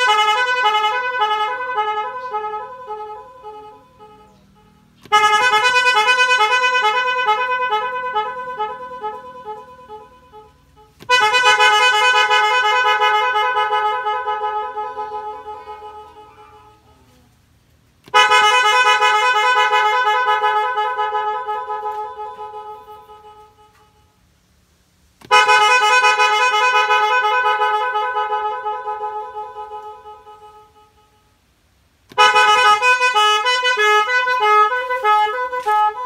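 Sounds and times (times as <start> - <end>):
musical car horn melody: 0.0 - 36.0.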